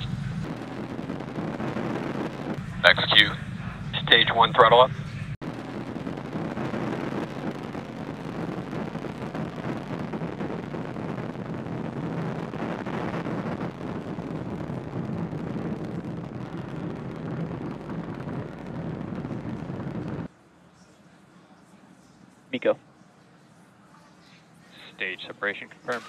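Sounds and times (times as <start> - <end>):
rocket engines rushing: 0.0 - 20.3.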